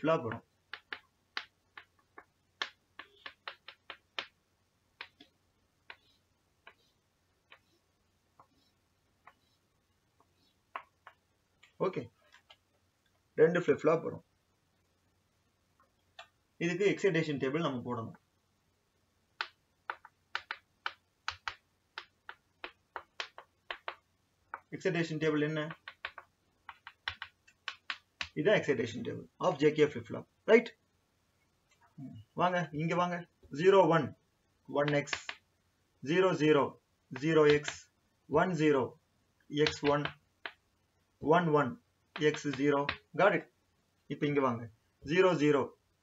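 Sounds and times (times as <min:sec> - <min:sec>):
chalk tapping on blackboard: 0:00.2 - 0:04.4, 0:05.0 - 0:07.8, 0:08.4 - 0:09.6, 0:10.2 - 0:11.3, 0:19.4 - 0:24.7, 0:25.6 - 0:28.4, 0:34.8 - 0:35.4, 0:37.1 - 0:37.9, 0:39.6 - 0:40.6, 0:42.1 - 0:43.1.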